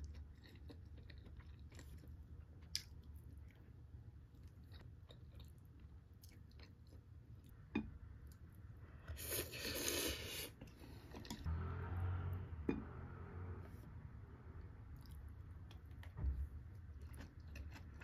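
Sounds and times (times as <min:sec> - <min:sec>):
chewing: 0:00.0 - 0:07.6, 0:14.9 - 0:18.0
slurping noodles: 0:09.2 - 0:10.6.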